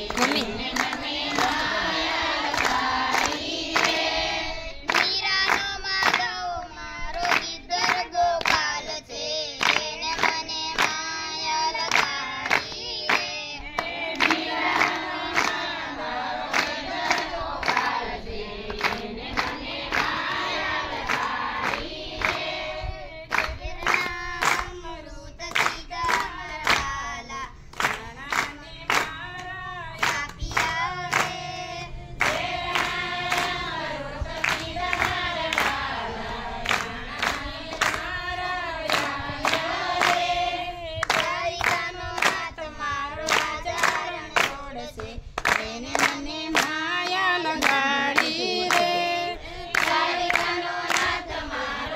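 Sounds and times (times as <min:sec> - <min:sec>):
hand-clapping: 0:00.0 - 0:22.6, 0:23.3 - 0:51.9
group singing devotional song: 0:00.0 - 0:51.9.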